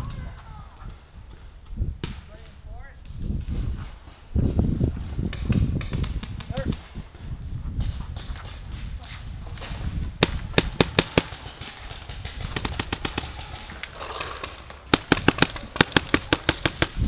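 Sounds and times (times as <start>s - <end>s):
paintball markers firing: 10.2s - 17.0s.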